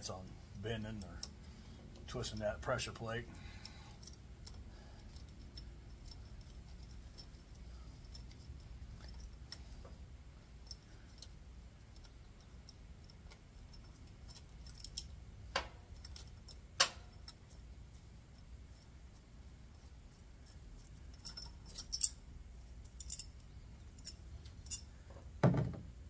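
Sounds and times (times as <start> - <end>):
faint low hum: 0.0 - 26.0
metallic clicks of ratchet and bolts: 3.5 - 9.7, 10.6 - 17.6, 20.4 - 22.2, 22.8 - 25.0.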